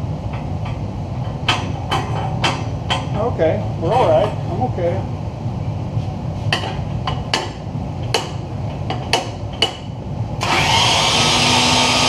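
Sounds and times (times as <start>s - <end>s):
steady low hum: 0.0s - 11.2s
sharp metal clanks and taps: 0.3s - 3.2s, 6.5s - 9.9s.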